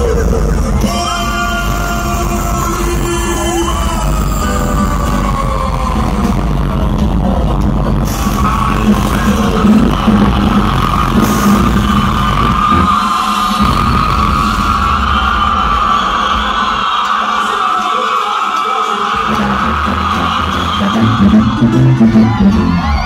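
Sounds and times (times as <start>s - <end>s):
live band playing: 0.0s - 17.4s, 19.1s - 23.0s
tuba bass: 6.0s - 14.1s, 19.2s - 23.0s
stringed instruments: 19.2s - 23.0s.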